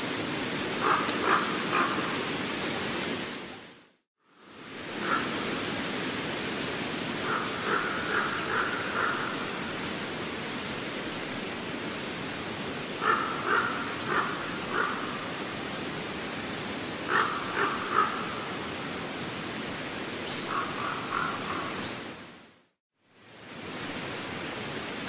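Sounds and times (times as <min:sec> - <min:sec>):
steady rushing hiss: 0:00.0 - 0:22.4, 0:23.0 - 0:25.0
animal calling: 0:13.0 - 0:15.1.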